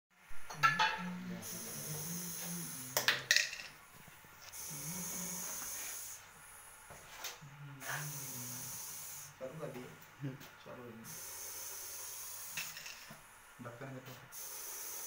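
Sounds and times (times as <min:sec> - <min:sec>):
snake hissing: 0:01.4 - 0:03.0, 0:04.5 - 0:06.3, 0:07.8 - 0:09.5, 0:11.0 - 0:12.8, 0:14.4 - 0:15.0.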